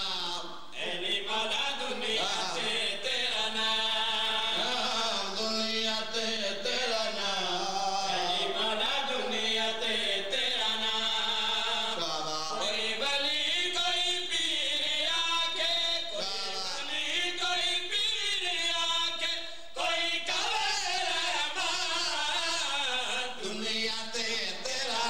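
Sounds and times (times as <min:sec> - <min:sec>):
man leading chant into microphone: 0:00.0 - 0:25.0
men chanting together: 0:00.0 - 0:25.0.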